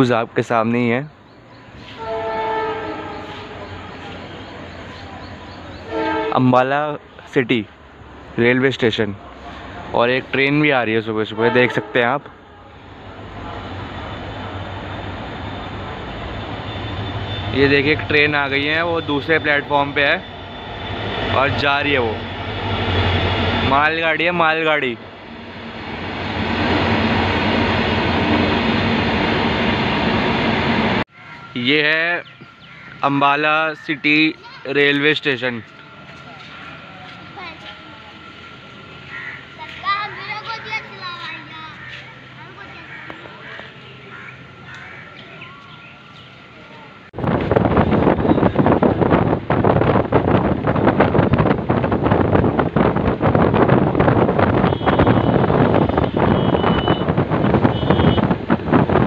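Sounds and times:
freight train rumbling past: 0.0 - 56.4, 57.0 - 59.0
bus rushing at speed: 12.8 - 31.1, 45.3 - 59.0
wind buffeting microphone: 47.1 - 59.0.

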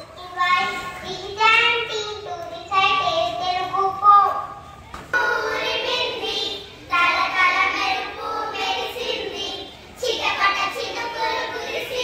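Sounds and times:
children singing: 5.1 - 12.0.

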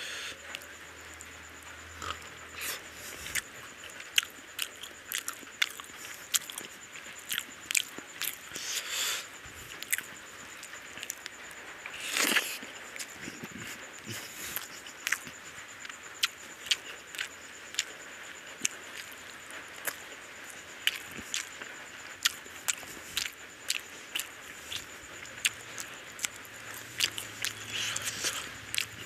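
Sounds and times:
wet chewing: 2.0 - 29.0.

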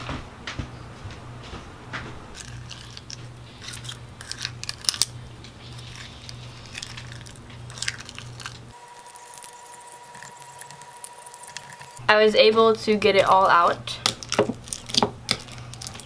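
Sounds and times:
spoon scraping crunchy slime: 2.4 - 12.0, 13.1 - 16.0.

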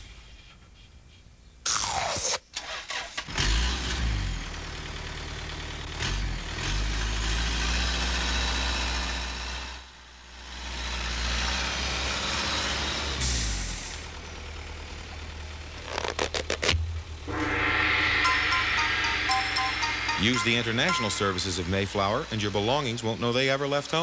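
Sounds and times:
truck engine starting and running: 2.6 - 17.3, 20.3 - 24.0.

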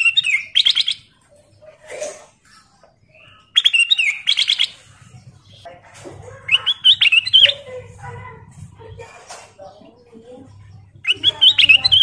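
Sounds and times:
bird warbling: 0.0 - 7.8, 10.8 - 12.0.

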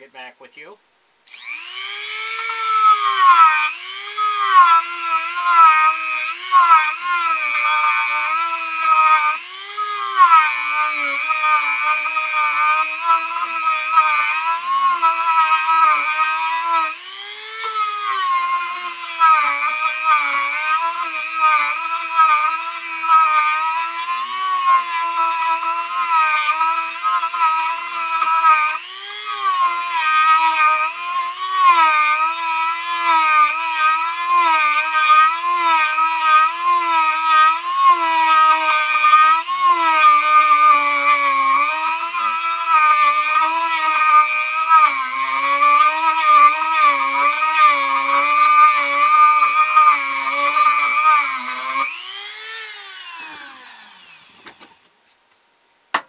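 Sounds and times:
rotary tool carving wood: 1.3 - 54.9.

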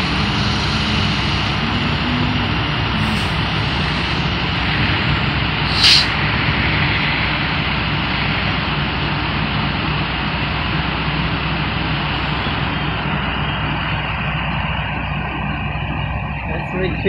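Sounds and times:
fire engine drone: 0.0 - 17.0
short sharp hiss: 5.7 - 6.2.

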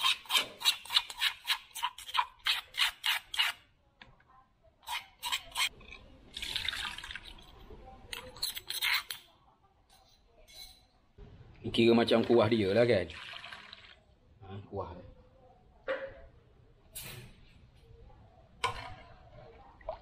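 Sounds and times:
spoon scraping a mortar: 0.0 - 3.7, 4.8 - 6.1, 7.4 - 9.3.

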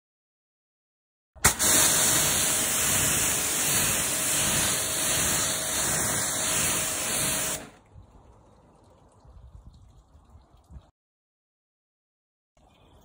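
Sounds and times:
water jet spraying: 1.4 - 7.8
water dripping and trickling: 6.3 - 11.0.

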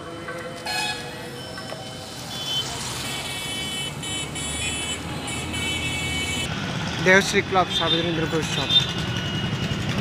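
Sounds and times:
high electronic warning tone: 0.6 - 6.5.

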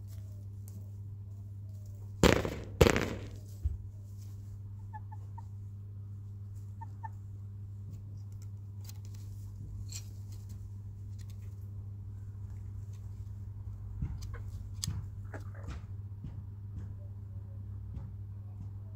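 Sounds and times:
steady low hum: 0.0 - 18.9
faint chick peeps: 4.8 - 5.6, 6.6 - 7.2
chickens pecking and scratching: 14.0 - 15.9.

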